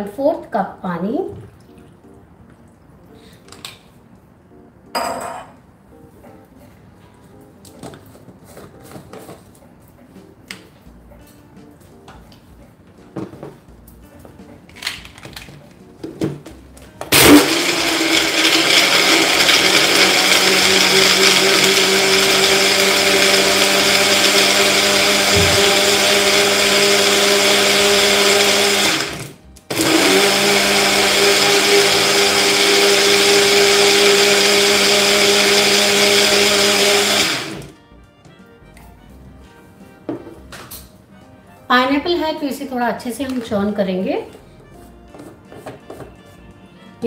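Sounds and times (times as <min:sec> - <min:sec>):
blender motor running: 0:17.1 - 0:37.7.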